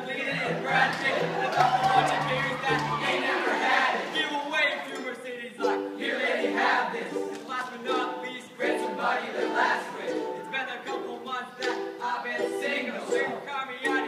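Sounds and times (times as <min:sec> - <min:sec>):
male group singing a cappella: 0:00.0 - 0:04.4, 0:06.0 - 0:14.0.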